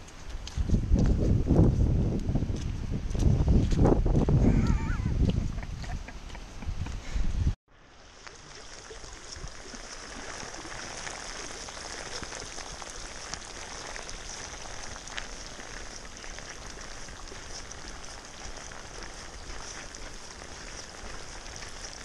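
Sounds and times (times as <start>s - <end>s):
steady rain falling: 7.9s - 22.0s.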